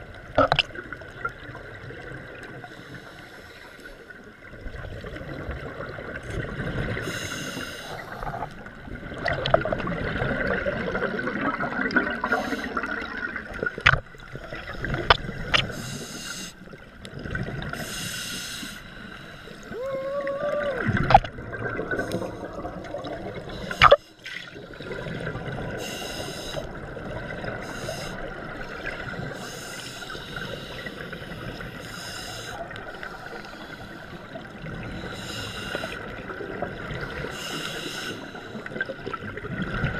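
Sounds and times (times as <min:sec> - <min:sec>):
regulator inhalation hiss: 0:07.0 - 0:08.4, 0:12.3 - 0:12.8, 0:15.7 - 0:16.6, 0:17.8 - 0:19.8, 0:25.8 - 0:26.7, 0:27.6 - 0:34.3, 0:35.0 - 0:36.1, 0:37.1 - 0:38.7.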